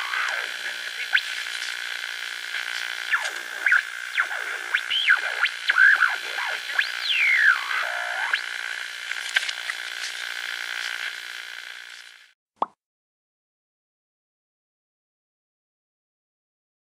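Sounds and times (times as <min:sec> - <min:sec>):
sliding radio whistling tones: 0:00.0 - 0:01.4, 0:03.1 - 0:08.5
radio static hiss: 0:00.0 - 0:12.2.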